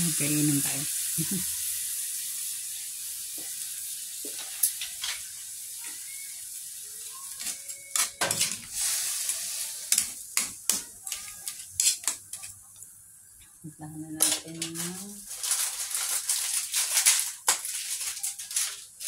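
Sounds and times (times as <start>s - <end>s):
shrimp sizzling in a pan: 0.0s - 13.4s, 14.2s - 19.0s
metal spatula scraping a pan: 7.2s - 12.6s.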